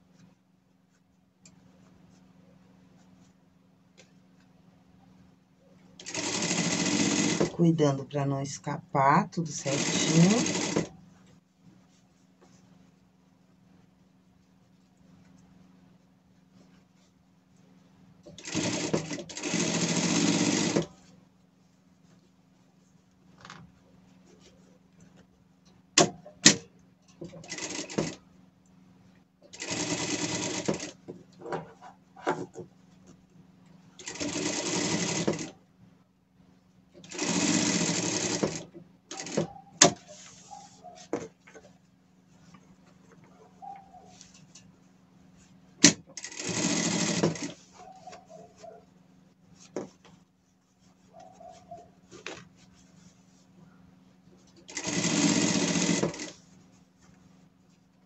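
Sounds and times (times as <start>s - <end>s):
sewing machine stitching: 6.0s - 7.6s, 9.5s - 11.0s, 18.3s - 21.0s, 27.3s - 28.2s, 29.5s - 31.0s, 34.0s - 35.6s, 37.0s - 40.0s, 45.8s - 47.6s, 54.6s - 56.4s.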